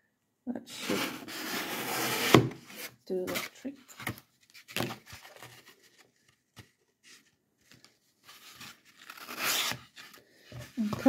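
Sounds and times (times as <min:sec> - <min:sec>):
soft rustles of handling: 0:02.8 - 0:09.2.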